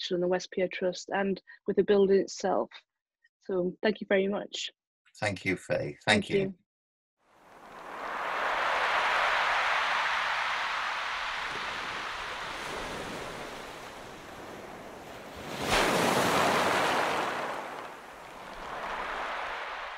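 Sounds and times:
sea waves washing in: 7.4 - 19.9.

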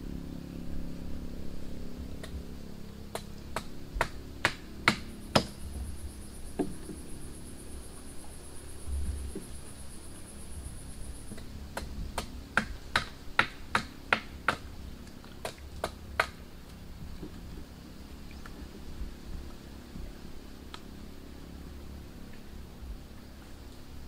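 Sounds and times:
sharp knocks: 3.1 - 5.6
insect buzzing: 4.8 - 11.7.

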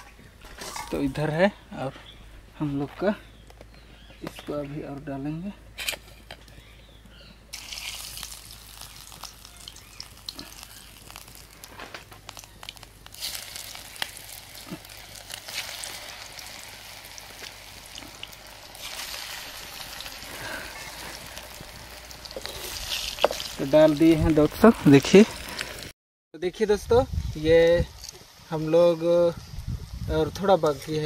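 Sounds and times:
food frying in oil: 7.5 - 25.9.

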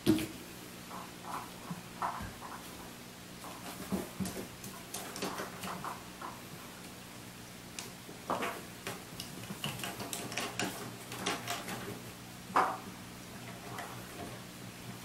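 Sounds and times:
cat claws scratching wood: 9.2 - 12.0.

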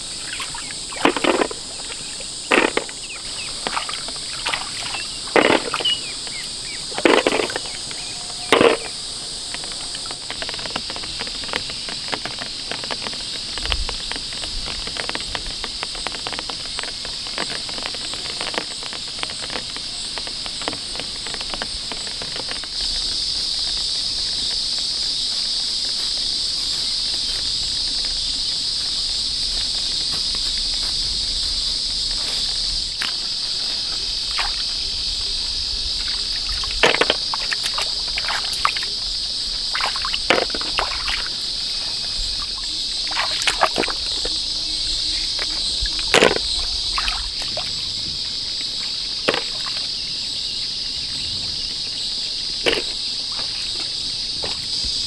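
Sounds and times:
small splashes: 0.0 - 14.1, 32.2 - 50.0, 52.6 - 54.7
insects chirring: 0.0 - 55.0.

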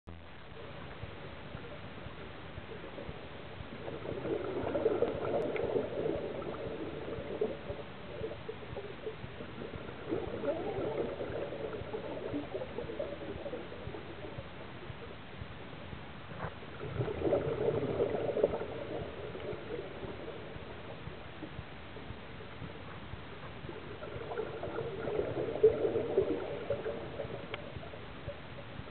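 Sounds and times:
breath bubbling underwater: 3.6 - 14.6, 16.8 - 20.8, 23.7 - 28.0.

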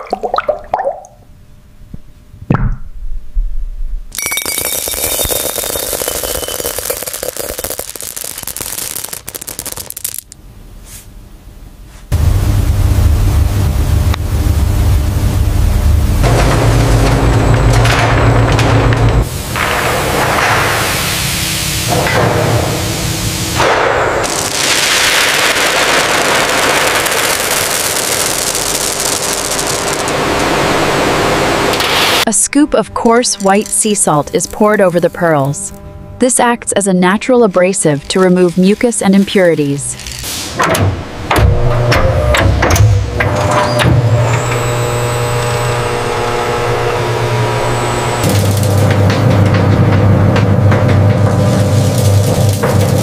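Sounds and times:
pearls pouring into glass bowl: 4.2 - 10.4, 24.4 - 30.0.

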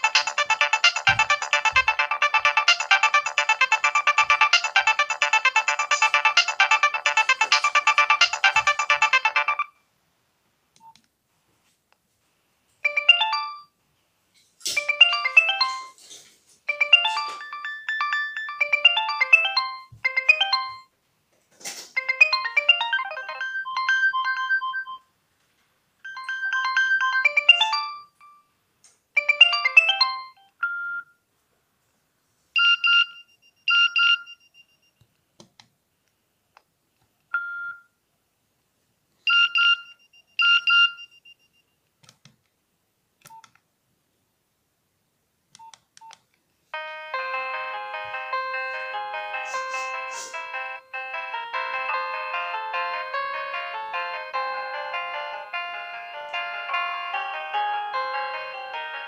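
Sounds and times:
synthesized ringtone melody: 0.0 - 9.8, 12.8 - 13.7, 14.8 - 16.0, 16.7 - 20.9, 22.0 - 25.1, 26.0 - 28.4, 29.2 - 31.1, 46.8 - 59.0.

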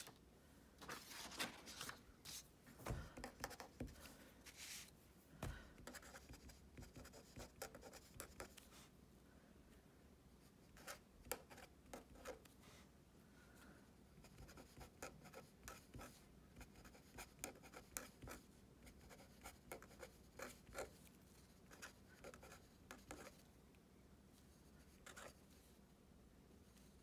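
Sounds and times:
pen scratching on paper: 5.8 - 8.6, 10.8 - 12.5, 14.2 - 21.0, 21.6 - 23.4.

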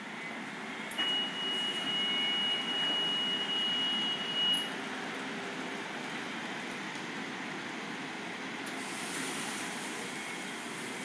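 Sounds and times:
car wash hiss and hum: 5.2 - 11.0.

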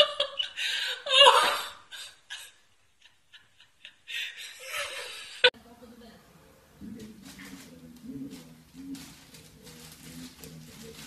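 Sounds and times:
person laughing and giggling: 0.0 - 5.5.

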